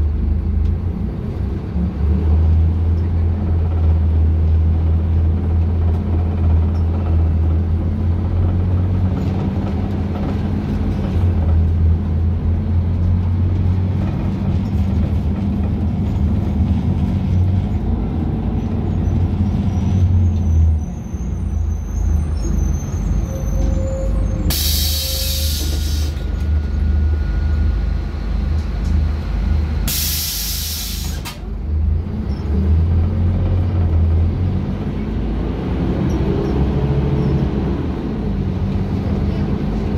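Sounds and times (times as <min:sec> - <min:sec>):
bus diesel engine running: 0:00.0 - 0:39.9
compressed air hissing: 0:24.5 - 0:26.2, 0:29.9 - 0:31.3.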